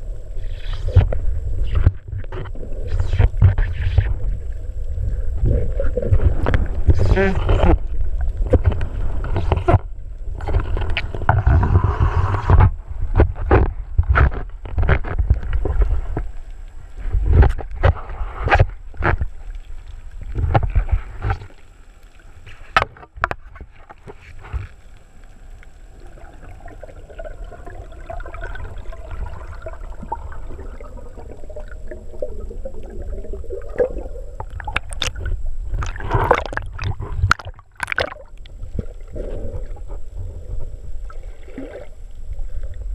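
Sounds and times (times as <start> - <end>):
water gurgling: 0.0 - 42.9
faint wavering hum: 23.6 - 42.9.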